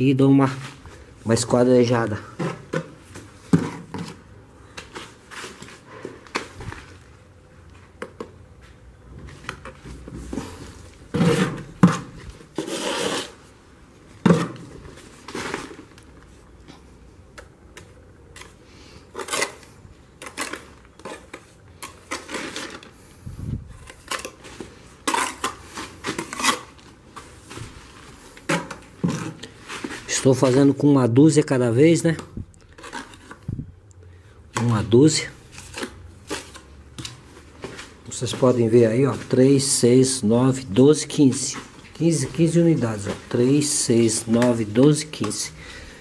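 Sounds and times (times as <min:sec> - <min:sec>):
trowel scraping mortar: 0:12.6 - 0:13.4.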